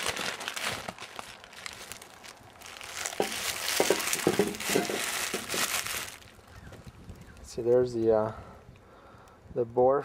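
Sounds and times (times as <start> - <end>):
bubble wrap crinkling: 0.0 - 7.5.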